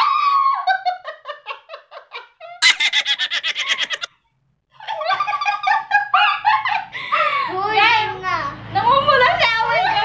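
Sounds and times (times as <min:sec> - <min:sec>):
girls giggling and laughing: 0:00.2 - 0:04.1, 0:04.8 - 0:07.5.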